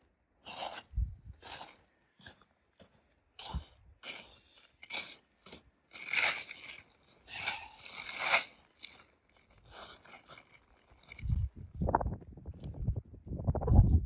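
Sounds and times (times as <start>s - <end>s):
footsteps crunching in snow: 0.5s - 11.7s
plastic tarp crinkling: 4.8s - 11.8s.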